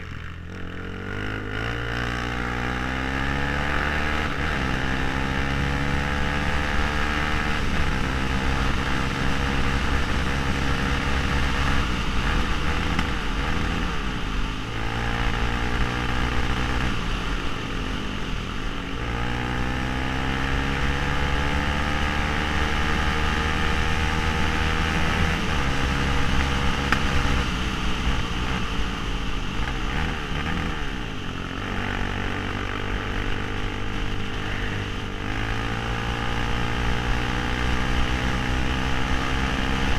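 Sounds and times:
quad engine revving through gears: 0.0s - 13.9s, 31.6s - 39.9s.

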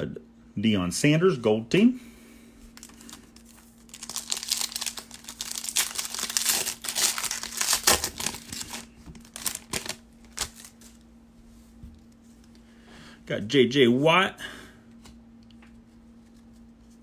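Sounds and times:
foil wrapper crinkling: 2.7s - 11.0s
foil wrapper tearing: 2.8s - 11.0s.

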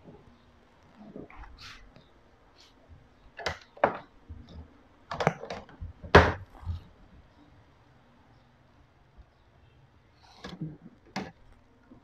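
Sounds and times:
clicks and knocks on a workbench: 10.4s - 11.4s.

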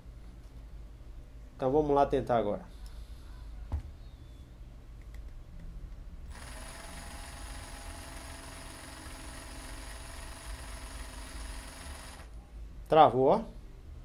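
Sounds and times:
electric drill motor whine: 6.3s - 12.3s.

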